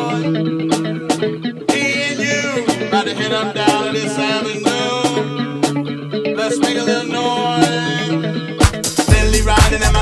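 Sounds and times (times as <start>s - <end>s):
strummed acoustic guitar: 0.0s - 10.0s
steady drum beat: 8.6s - 10.0s.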